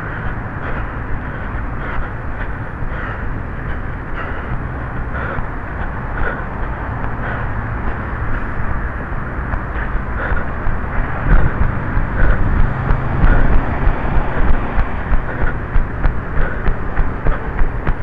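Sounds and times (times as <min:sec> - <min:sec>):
wind buffeting microphone: 0:00.0 - 0:18.0
running stride thumps: 0:09.0 - 0:18.0.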